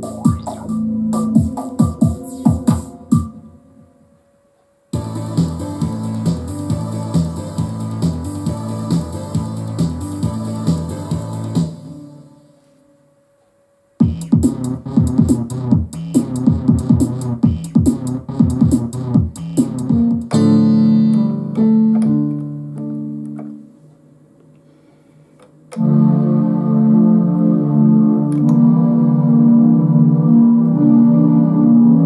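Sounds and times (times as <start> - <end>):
synthesizer plucked notes: 0.0 - 4.1, 14.0 - 23.7, 25.7 - 32.0
synthesizer chords: 0.0 - 12.8, 14.0 - 23.9, 25.7 - 32.0.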